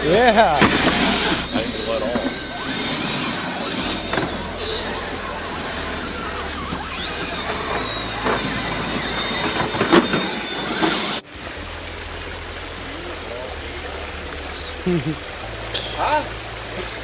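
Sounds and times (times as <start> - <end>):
rc car motor whining: 0.0 - 11.2
tyres scraping on rock: 0.0 - 11.2
stream rushing: 0.0 - 17.0.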